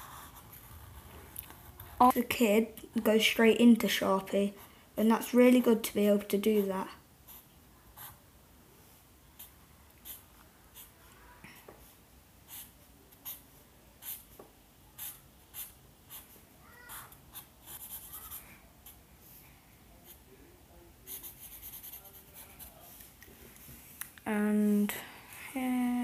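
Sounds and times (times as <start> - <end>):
marker scratching on paper: 4.5 - 8.2, 9.4 - 11.0, 12.5 - 14.4, 15.0 - 19.0, 21.1 - 23.0.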